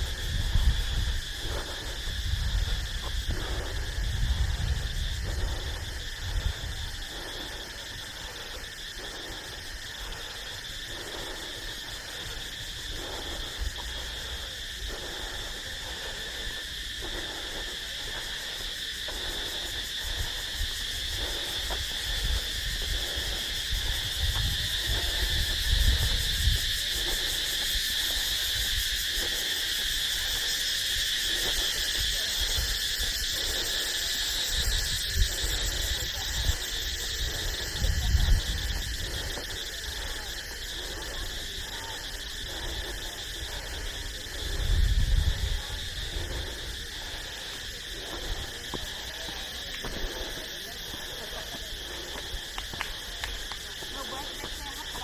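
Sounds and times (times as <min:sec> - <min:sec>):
crickets and insects trilling: 0:00.0 - 0:55.0
footsteps on concrete: 0:45.6 - 0:55.0.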